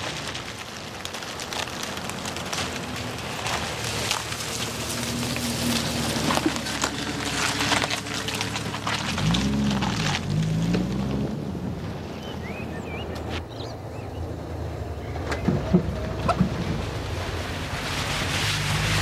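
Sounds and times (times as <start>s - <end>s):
tyres crackling on frozen ground: 0.0s - 19.0s
car engine running: 2.5s - 17.0s.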